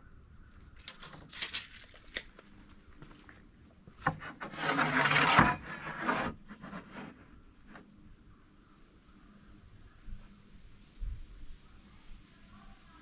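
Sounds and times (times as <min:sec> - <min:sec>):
straightedge scraping across board: 0:04.0 - 0:07.2
tools rubbing and tapping on plywood: 0:04.0 - 0:07.3.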